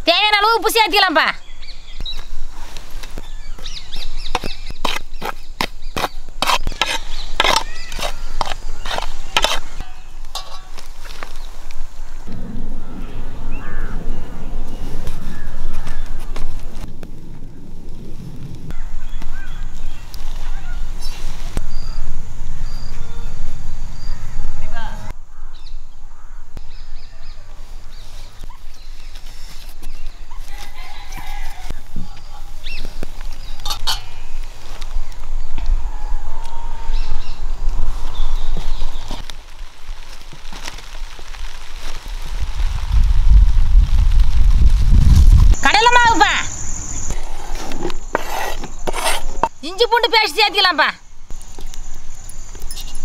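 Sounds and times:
birds chirping: 0.7 - 16.4, 45.6 - 53.0.

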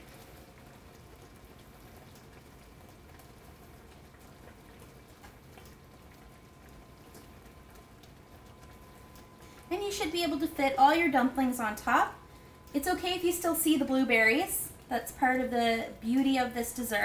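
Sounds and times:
sauce bubbling in a frying pan: 0.0 - 17.0.

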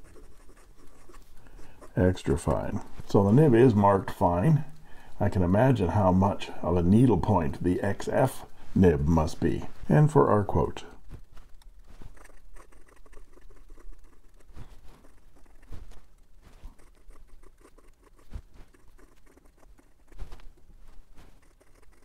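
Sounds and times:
fountain pen scratching paper: 0.0 - 3.7, 12.0 - 22.0.

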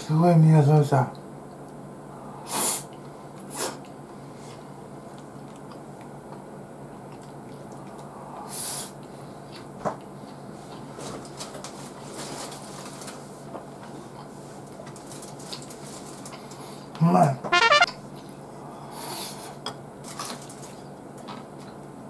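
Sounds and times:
sniffs through the nose: 2.4 - 2.9, 3.5 - 4.6
man chewing food: 3.8 - 10.5.

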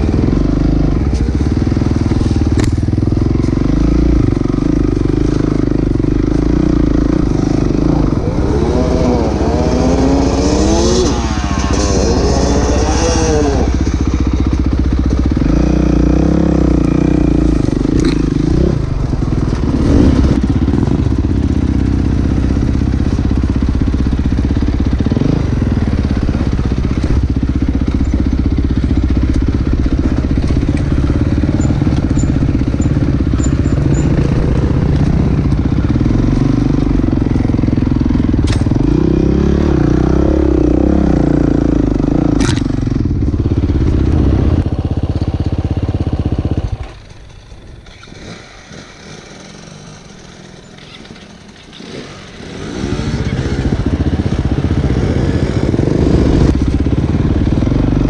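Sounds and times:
dirt bike engine revving: 0.0 - 47.0, 47.8 - 58.0.

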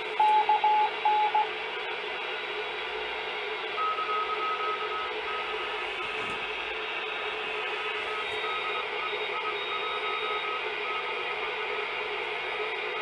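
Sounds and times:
morse code beeping: 0.2 - 1.5, 3.8 - 10.7
faint high-pitched morse signal: 3.8 - 11.2
radio static hiss: 5.2 - 11.4.

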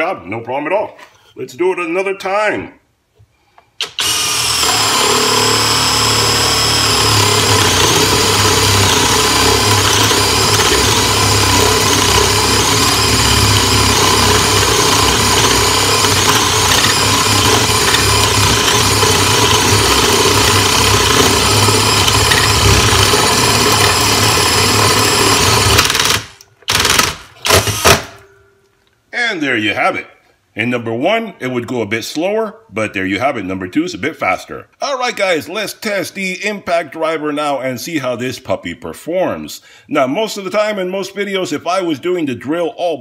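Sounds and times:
power drill boring into wood: 3.8 - 28.2.

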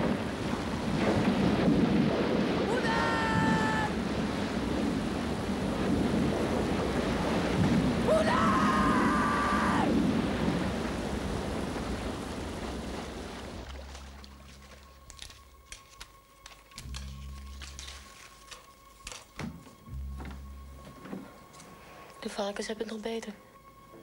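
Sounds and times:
wind rain and heavy sea: 0.0 - 17.1
long wailing tones: 8.0 - 10.2.

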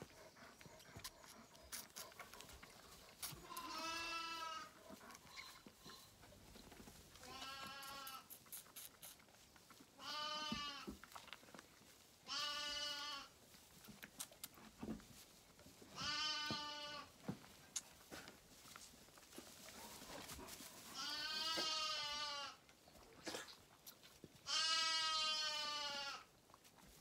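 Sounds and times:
lamb bleating: 3.4 - 5.6, 7.2 - 8.3, 10.0 - 10.9, 12.3 - 13.3, 16.0 - 17.1, 21.0 - 22.6, 24.5 - 26.3.

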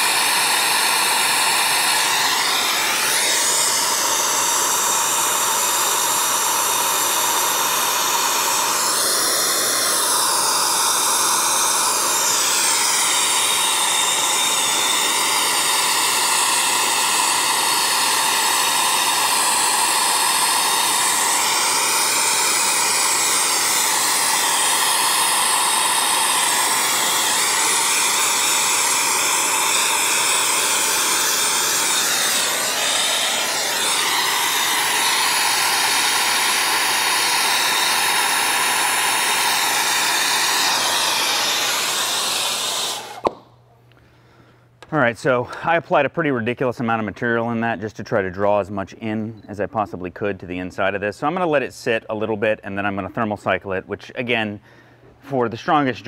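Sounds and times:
gas torch flame hissing: 0.0 - 43.5.

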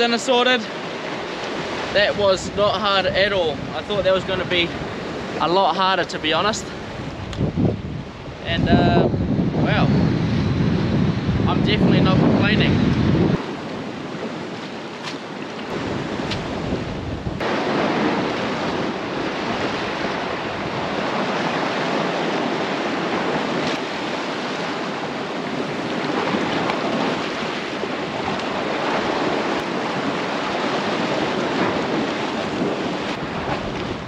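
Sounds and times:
wind buffeting microphone: 0.0 - 34.0
surf breaking over rocks: 9.6 - 34.0.

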